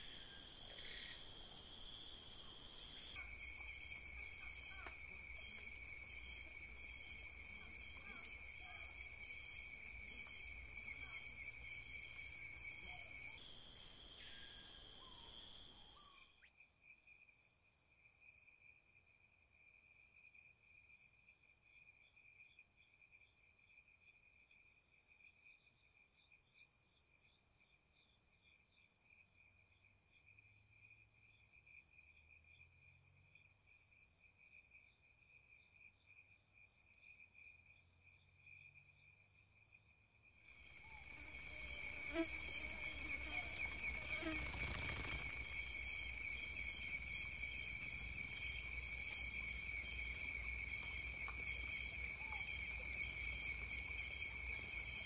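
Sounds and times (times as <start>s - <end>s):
night insects trilling: 0.0s - 16.4s, 40.4s - 55.0s
very high insect chirp: 0.0s - 16.5s, 40.5s - 55.0s.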